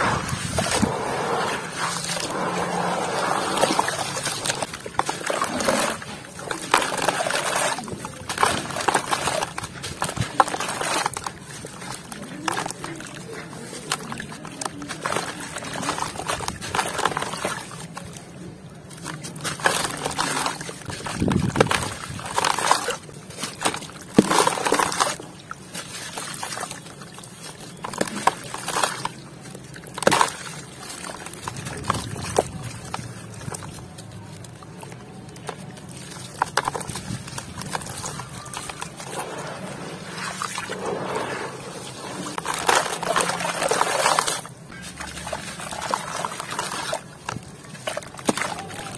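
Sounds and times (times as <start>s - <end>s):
grit crunching by hand: 0.0s - 18.0s, 30.0s - 48.9s
muddy water splashing: 0.0s - 48.9s.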